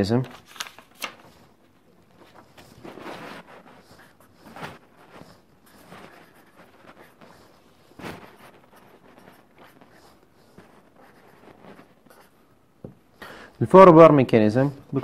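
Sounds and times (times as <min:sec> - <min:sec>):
pen scratching on paper: 0:02.1 - 0:12.4.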